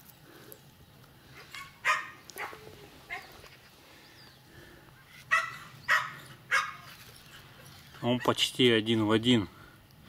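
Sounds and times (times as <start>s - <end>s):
dog barking: 1.5s - 3.3s, 5.3s - 6.9s.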